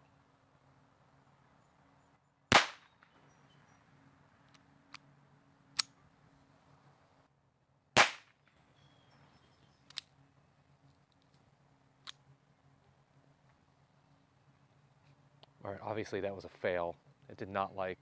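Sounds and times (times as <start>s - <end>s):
pistol shot crack: 2.5s - 3.2s, 8.0s - 8.4s
metallic clicks of pistol handling: 5.7s - 6.0s, 9.8s - 10.2s, 10.9s - 12.2s.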